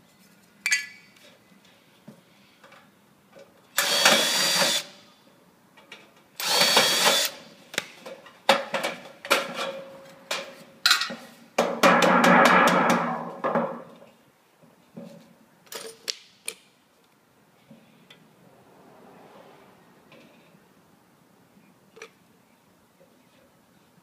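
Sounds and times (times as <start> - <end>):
cordless drill against metal: 3.8 - 4.9, 6.4 - 7.4.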